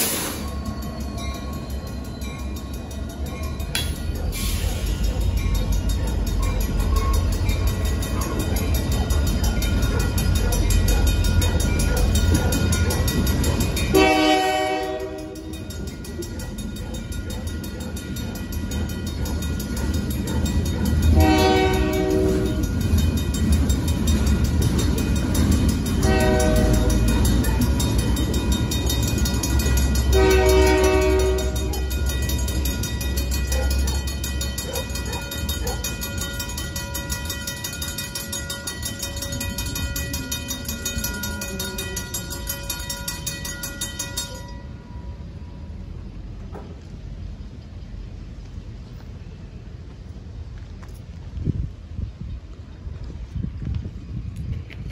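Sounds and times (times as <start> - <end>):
crossing bells ringing: 0.0 - 46.9
freight train rumbling: 0.0 - 54.9
train horn blasts: 13.9 - 15.6, 21.1 - 22.7, 26.0 - 27.1, 30.0 - 32.0.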